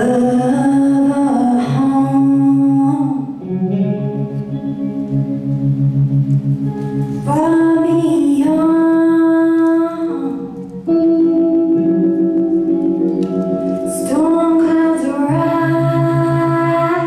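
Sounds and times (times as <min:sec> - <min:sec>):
woman singing gospel song: 0:00.0 - 0:03.4, 0:07.2 - 0:10.6, 0:13.9 - 0:17.0
electric guitar playing: 0:00.0 - 0:17.0.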